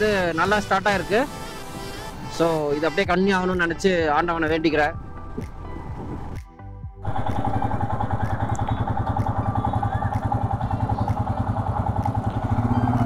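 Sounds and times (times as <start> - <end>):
motorcycle engine idling: 7.0 - 13.0.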